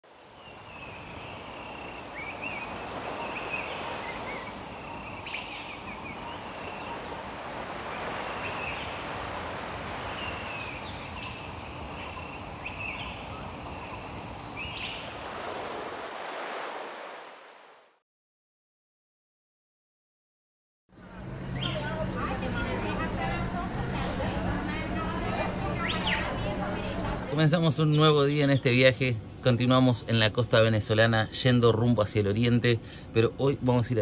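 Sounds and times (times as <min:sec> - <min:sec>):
ocean surf washing onto beach: 0:00.1 - 0:17.9.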